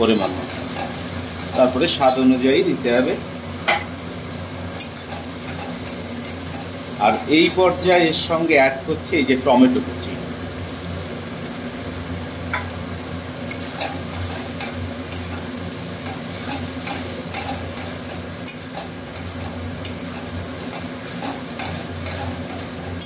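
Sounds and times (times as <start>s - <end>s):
food sizzling in hot oil: 0.0s - 23.0s
metal spatula stirring and scraping: 4.8s - 6.8s, 13.5s - 23.0s.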